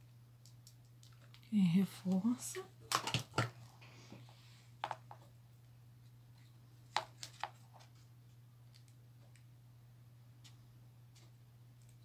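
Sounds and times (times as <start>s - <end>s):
faint clicks and taps: 0.4s - 1.5s, 8.6s - 9.5s, 10.4s - 12.0s.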